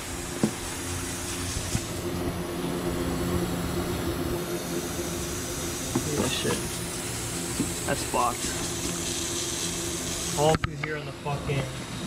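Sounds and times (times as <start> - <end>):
hiss of air: 0.0 - 2.4, 4.4 - 10.6
low mechanical hum: 0.0 - 12.0.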